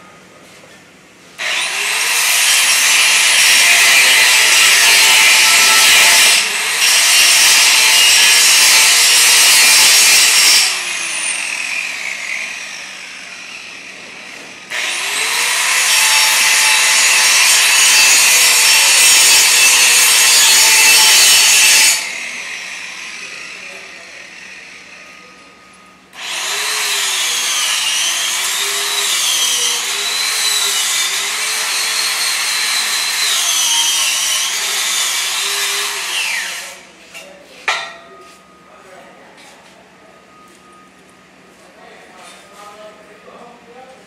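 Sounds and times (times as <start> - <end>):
angle grinder grinding steel: 1.4 - 25.0, 26.2 - 36.9.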